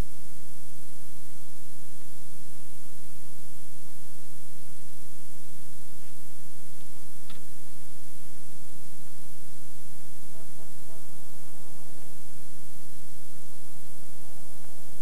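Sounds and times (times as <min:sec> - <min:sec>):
mains hum: 0:00.0 - 0:15.0
tape hiss: 0:00.0 - 0:15.0
faint click: 0:06.8 - 0:07.6.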